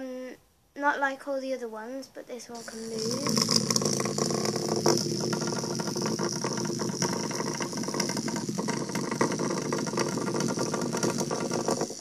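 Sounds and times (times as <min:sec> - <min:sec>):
toy motor whirring with rattle: 0:02.6 - 0:12.0.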